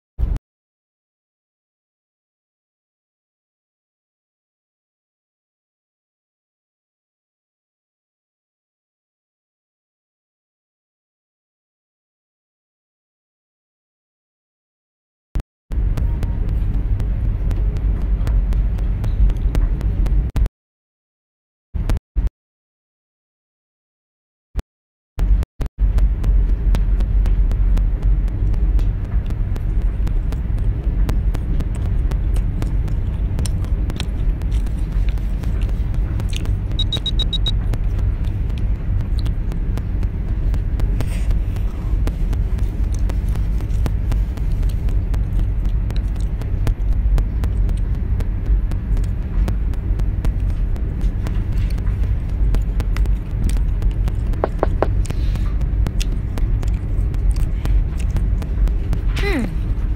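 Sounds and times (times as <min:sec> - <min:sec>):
low rumble and hum: 0:00.2 - 0:00.4, 0:15.7 - 0:20.5, 0:21.8 - 0:22.3, 0:25.2 - 0:59.9
high beeps: 0:36.7 - 0:37.6.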